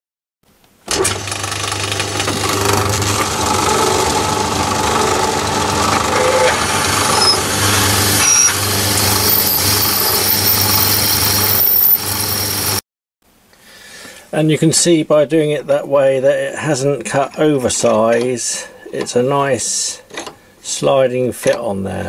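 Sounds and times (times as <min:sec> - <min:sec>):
drill boring through metal bar: 0:00.9 - 0:12.8
metalworking lathe running: 0:00.9 - 0:12.8.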